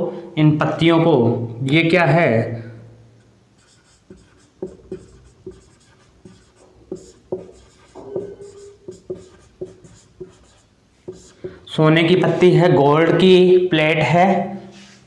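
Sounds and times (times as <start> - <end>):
marker squeaking on whiteboard: 3.2 - 12.4.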